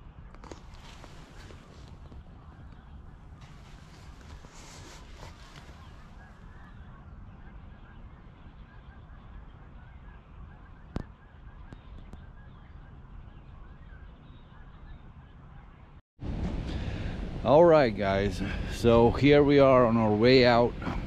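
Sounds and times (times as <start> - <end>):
distant geese honking: 0.0 - 15.8
low rumble: 16.2 - 21.0.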